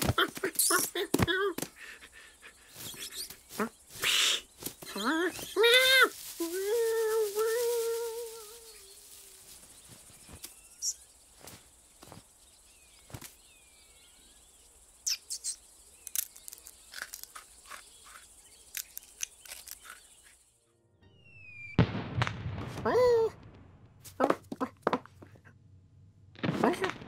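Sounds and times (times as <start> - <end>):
insect-like hiss: 0.0 - 20.6
faint bird chirps: 0.2 - 21.8
sharp clicks and rustles: 16.0 - 20.1.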